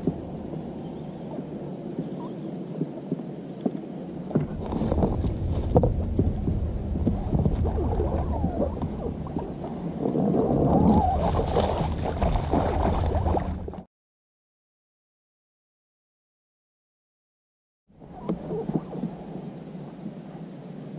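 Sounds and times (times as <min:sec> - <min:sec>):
water splashing and sloshing: 0:00.0 - 0:13.9, 0:18.0 - 0:20.4
low rumble: 0:04.3 - 0:13.8.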